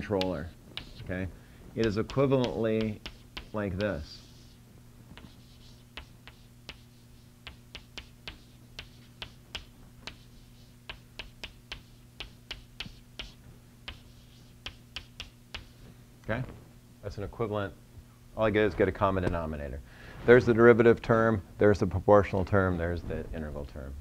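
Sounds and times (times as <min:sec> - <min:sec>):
chalk tapping on blackboard: 0:00.0 - 0:01.1, 0:01.8 - 0:04.6, 0:05.2 - 0:15.8
steady low hum: 0:00.0 - 0:24.0.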